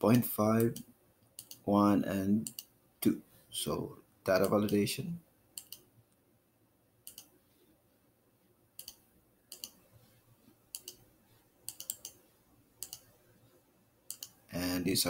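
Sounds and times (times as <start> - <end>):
computer mouse clicks: 0.1 - 1.6, 2.4 - 2.7, 5.6 - 5.9, 7.0 - 7.3, 8.8 - 9.8, 10.7 - 12.2, 12.8 - 13.1, 14.1 - 14.4.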